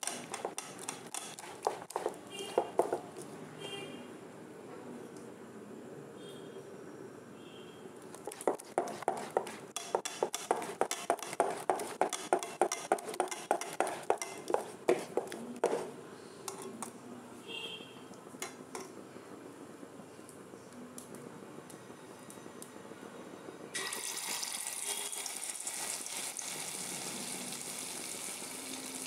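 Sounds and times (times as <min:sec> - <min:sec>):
spoon clacking against bowl: 0:00.0 - 0:03.0, 0:08.3 - 0:15.8.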